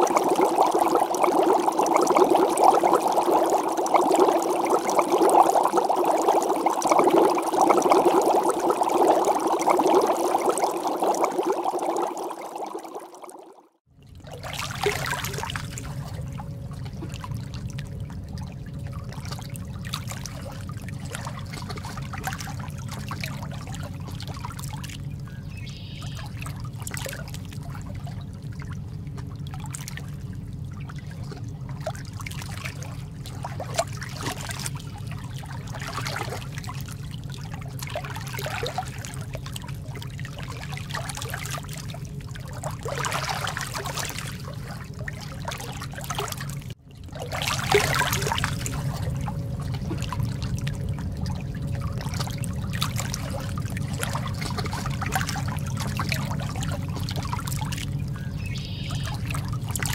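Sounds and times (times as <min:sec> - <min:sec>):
seawater sloshing and splashing: 0:00.0 - 0:59.9.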